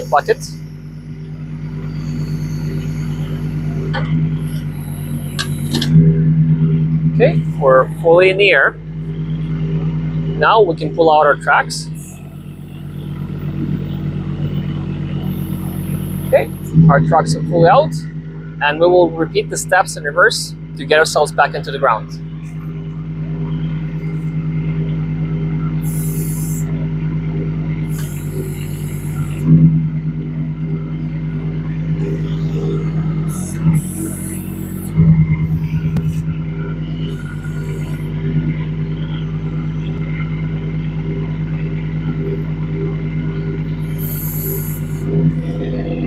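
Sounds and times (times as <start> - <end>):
diesel engine running: 0.0 - 46.0
hydraulic hissing bursts: 11.9 - 16.8, 25.8 - 26.7, 27.9 - 29.5, 32.0 - 36.2, 37.1 - 38.2, 43.8 - 45.5.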